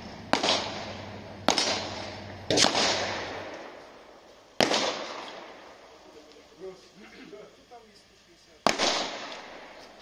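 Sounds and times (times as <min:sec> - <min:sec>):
rifle shots echoing: 0:00.2 - 0:04.0, 0:04.6 - 0:05.7, 0:08.6 - 0:09.8.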